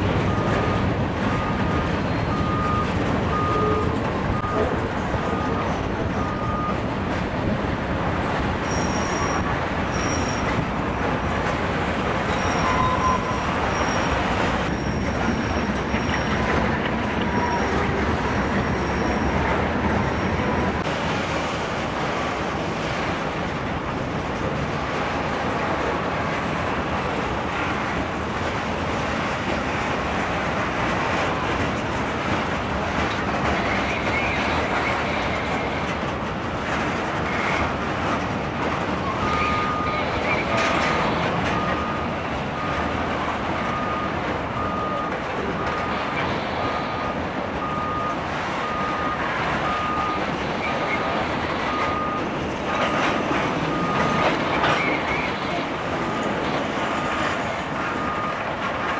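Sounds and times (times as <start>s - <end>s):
train wheels rumbling on rail: 0.0s - 58.9s
high wheel squeal: 8.6s - 10.7s, 12.2s - 20.8s, 33.5s - 35.9s, 39.0s - 42.8s, 43.6s - 58.4s.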